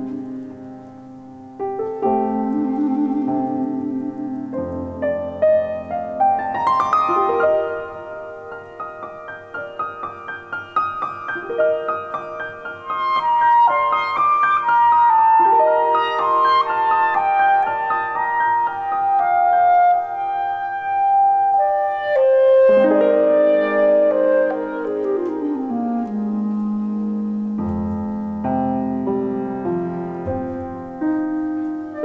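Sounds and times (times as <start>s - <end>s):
clarinet melody: 0.0s - 32.0s
piano arpeggios: 0.0s - 32.0s.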